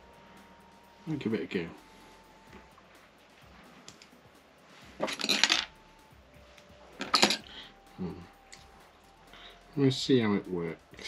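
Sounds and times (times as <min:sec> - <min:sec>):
small hard objects clattering: 0:05.0 - 0:05.7.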